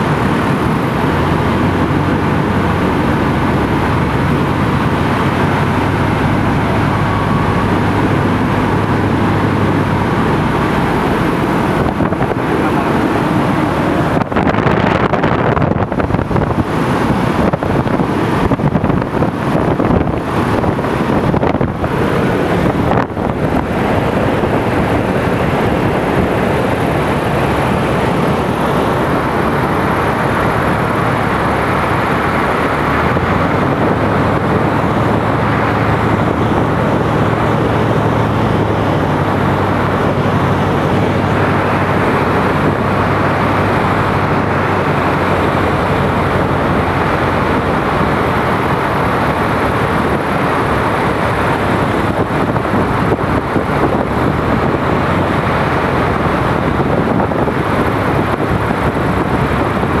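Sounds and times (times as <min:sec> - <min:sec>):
light aircraft engine running: 0:00.0 - 1:00.0
rushing airflow: 0:00.0 - 1:00.0.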